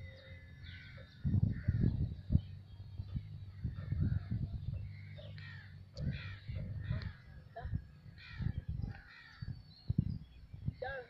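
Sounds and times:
low rumbling thumps: 0:00.0 - 0:11.0
crows cawing: 0:00.1 - 0:02.0, 0:03.6 - 0:07.4, 0:08.1 - 0:09.6.

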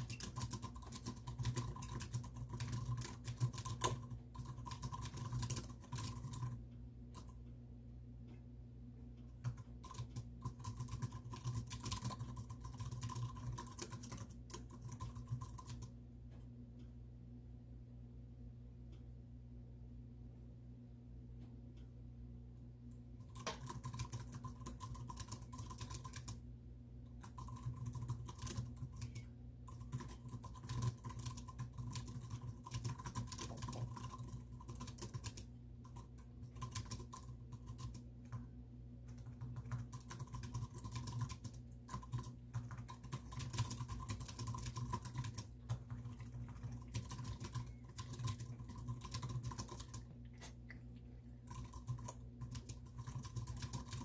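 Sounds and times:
typing on computer keyboard: 0:00.0 - 0:07.4, 0:09.2 - 0:16.0, 0:23.2 - 0:26.4, 0:27.1 - 0:50.2, 0:51.4 - 0:54.0
steady low hum: 0:00.0 - 0:54.0.

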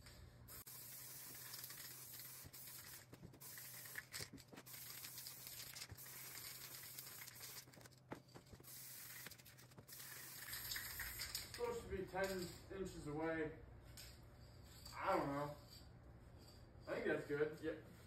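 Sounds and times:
aerosol spray can hissing: 0:00.5 - 0:07.7, 0:08.6 - 0:11.3.

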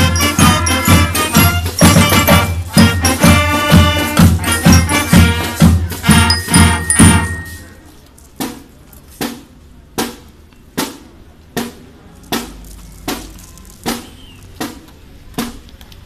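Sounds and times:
marching band music: 0:00.0 - 0:07.9
drum strokes: 0:00.0 - 0:15.6.

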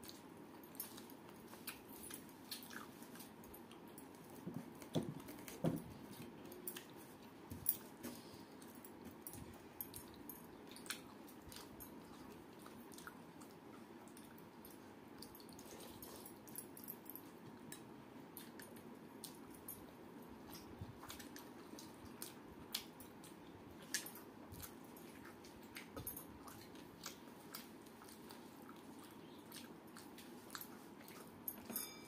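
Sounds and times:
chewing and wet mouth sounds: 0:00.0 - 0:31.6.

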